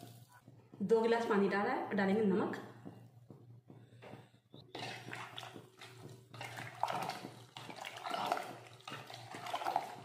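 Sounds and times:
ladle stirring liquid in a pot: 4.5 - 10.0
liquid sloshing: 4.7 - 10.0.

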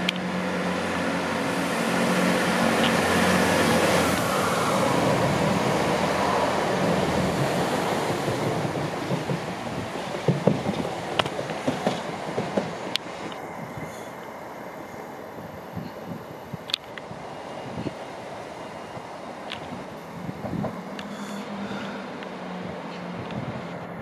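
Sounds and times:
diesel train engines droning: 0.0 - 24.0
train passing rumble: 0.0 - 24.0
wheels clicking over rail joints: 2.5 - 4.3, 6.7 - 13.4, 16.6 - 23.5.

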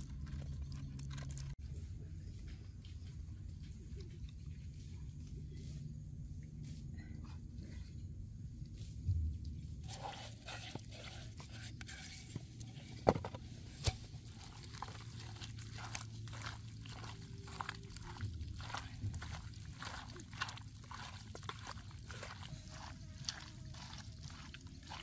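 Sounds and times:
hand squelching wet paste: 9.5 - 25.0.

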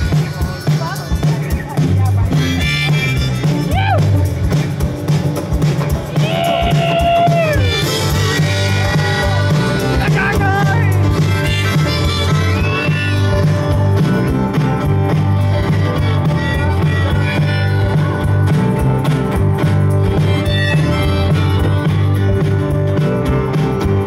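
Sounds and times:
drum kit: 0.0 - 24.0
electric bass: 0.0 - 24.0
keyboard: 0.0 - 24.0.

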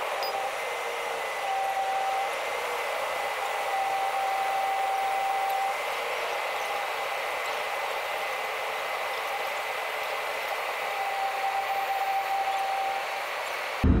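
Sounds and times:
thin steady whine: 0.0 - 14.0
lower whine: 10.9 - 14.0.

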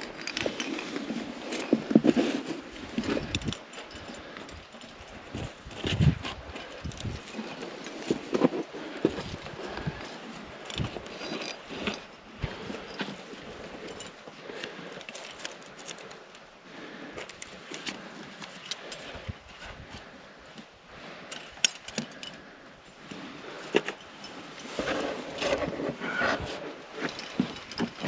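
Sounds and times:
metal climbing gear jingling: 0.0 - 28.0
scraping against rock: 23.1 - 28.0.

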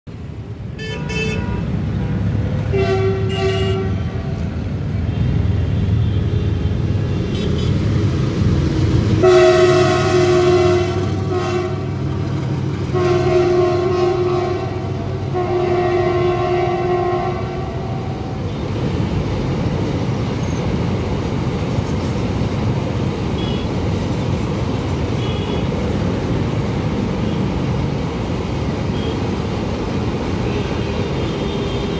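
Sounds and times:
train wagons rumbling and clattering: 0.1 - 31.9
locomotive horn blasts: 0.8 - 4.3, 9.2 - 12.0, 12.9 - 18.6, 25.2 - 25.8.

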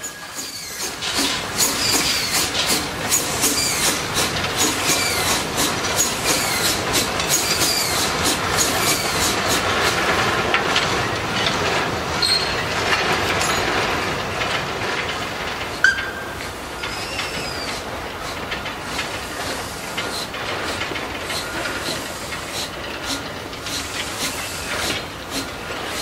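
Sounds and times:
high wheel squeals: 0.0 - 2.5, 12.2 - 12.6, 16.8 - 18.4
train rumble: 0.0 - 26.0
wheels clanking over rail joints: 0.0 - 26.0.

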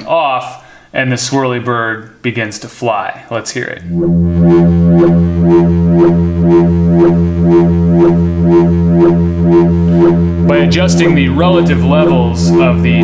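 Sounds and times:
pulsing synthesizer drone: 3.8 - 13.0.

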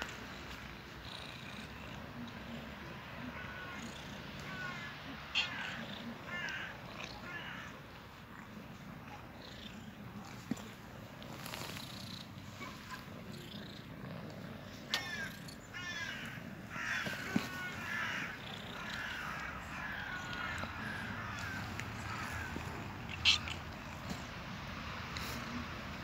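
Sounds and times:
cat purring: 0.0 - 4.8, 5.4 - 26.0
cat chirping calls: 14.9 - 23.9.

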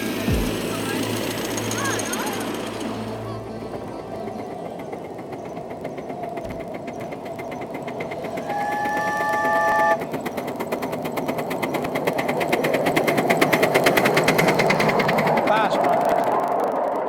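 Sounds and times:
steam locomotive exhaust beats: 0.0 - 17.0
chime whistle: 8.3 - 10.0.

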